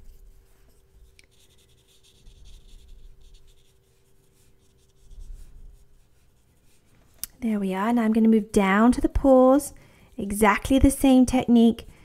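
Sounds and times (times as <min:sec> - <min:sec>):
paintbrush rubbing on paper: 0:00.0 - 0:07.2
faint steady hum: 0:00.0 - 0:12.0.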